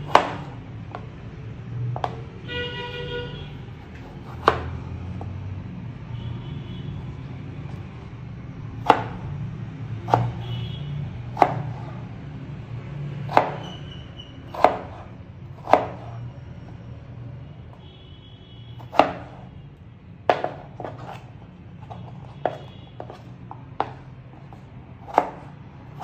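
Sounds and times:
knife hitting cutting board: 20.3s - 21.2s.

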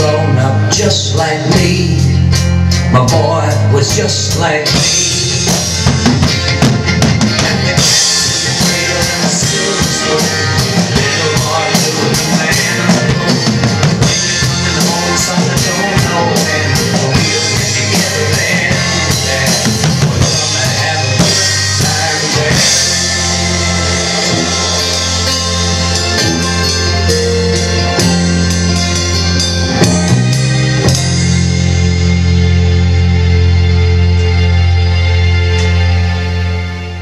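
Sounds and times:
sustained bass notes: 0.0s - 37.0s
drum hits: 4.7s - 32.4s.

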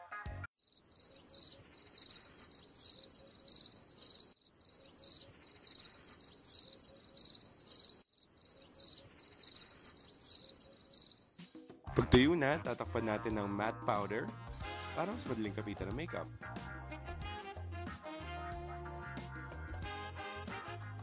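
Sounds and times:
crickets chirping: 0.6s - 11.7s.

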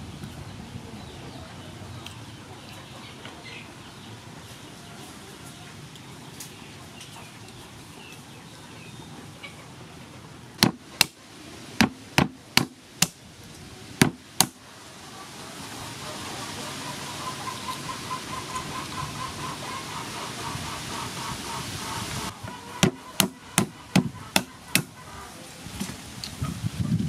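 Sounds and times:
pestle knocking crab shells: 10.6s - 11.2s, 11.8s - 13.2s, 14.0s - 14.6s, 22.8s - 24.9s.

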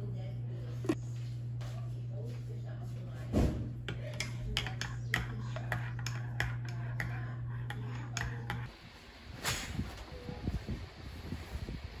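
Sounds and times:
steady low hum: 0.0s - 12.0s
spoon clinking in ceramic mug: 4.1s - 7.1s.

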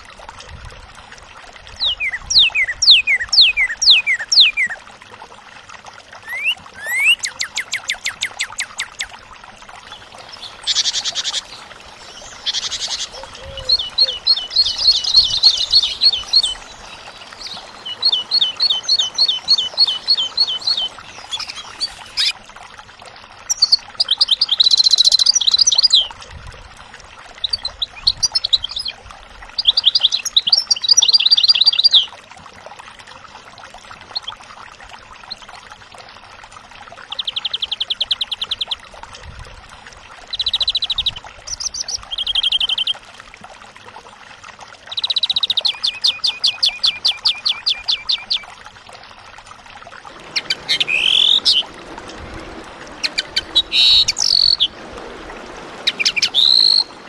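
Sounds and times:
birdsong high repeated notes: 6.3s - 7.9s, 10.0s - 22.3s, 55.9s - 56.9s.

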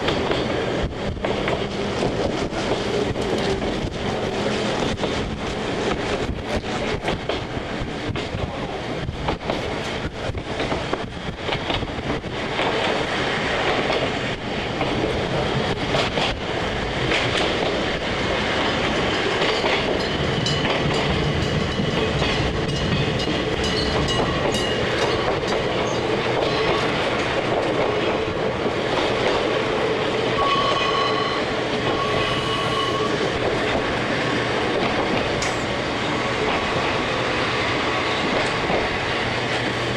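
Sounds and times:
train wheels clicking over rail joints: 0.0s - 32.3s, 33.0s - 39.8s
high whining tones: 30.4s - 33.3s.

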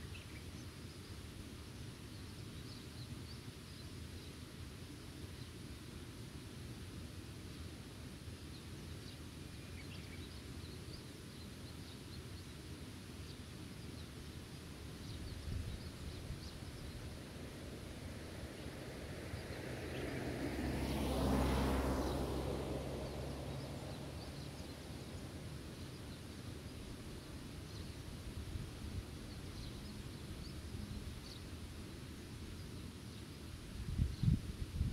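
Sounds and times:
background hiss: 0.0s - 34.9s
motor vehicle passing: 17.2s - 27.1s.

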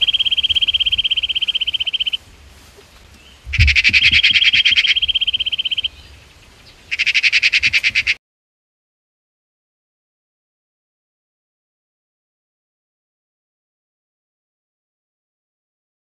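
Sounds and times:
bird trilling: 0.0s - 2.2s, 3.3s - 8.2s.

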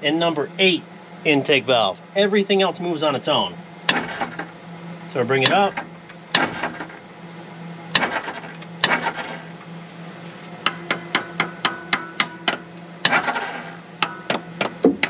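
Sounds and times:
hammer striking metal: 10.6s - 13.2s.

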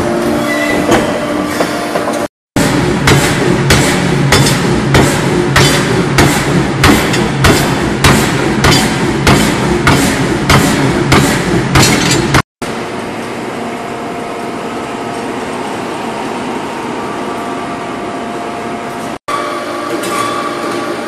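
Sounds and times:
workshop machinery hum: 0.0s - 21.0s
hammer striking hot metal: 2.6s - 12.4s.

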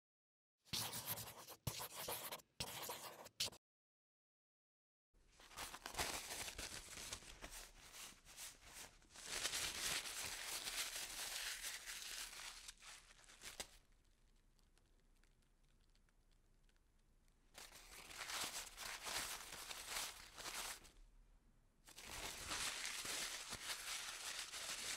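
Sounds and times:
pencil scratching on paper: 0.7s - 3.6s.

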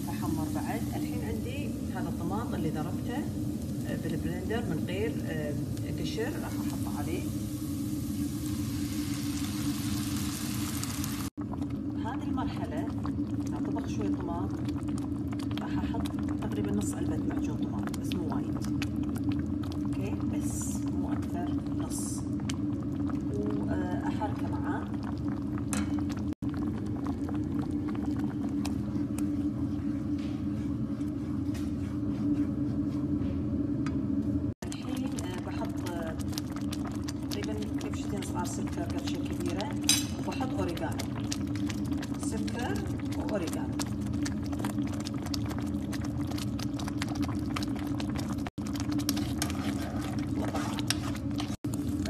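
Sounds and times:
sauce bubbling in a pan: 0.0s - 30.0s, 34.6s - 52.0s
steady low hum: 0.0s - 52.0s
spatula stirring sauce in a pan: 43.9s - 52.0s.

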